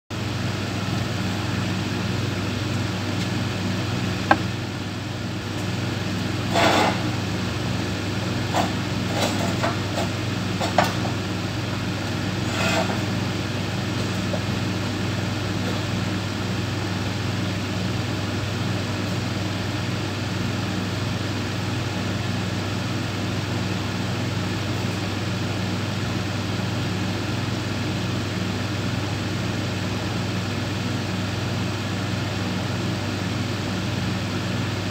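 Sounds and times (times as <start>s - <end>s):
machine motor humming: 0.2s - 6.2s.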